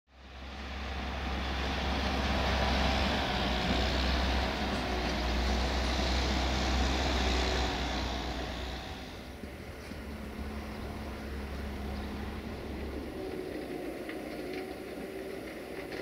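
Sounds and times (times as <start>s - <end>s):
low engine rumble: 0.1s - 16.0s
even hiss: 5.2s - 13.9s.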